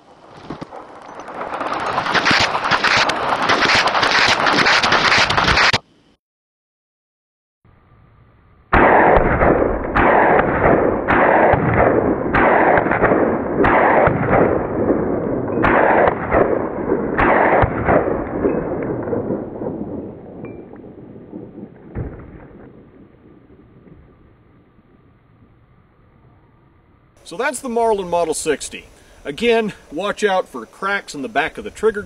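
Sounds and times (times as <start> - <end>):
rifle shots: 0.4 - 5.8, 8.7 - 20.4.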